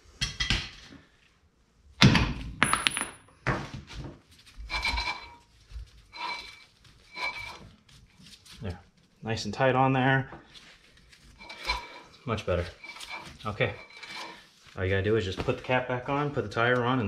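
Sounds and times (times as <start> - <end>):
metal hand tools clanking: 11.4 - 14.5.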